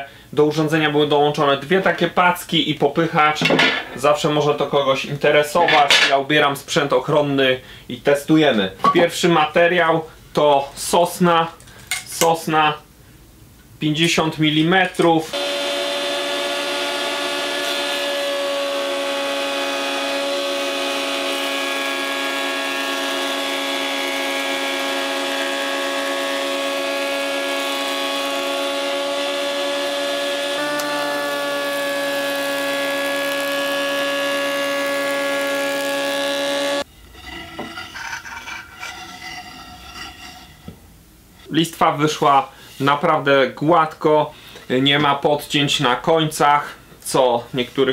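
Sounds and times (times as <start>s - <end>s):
planer whining: 15.3s - 36.9s
shop vacuum: 15.3s - 36.9s.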